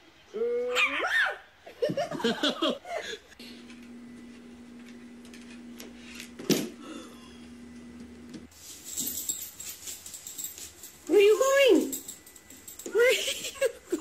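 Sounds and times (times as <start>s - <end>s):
steady low hum: 3.3s - 13.0s.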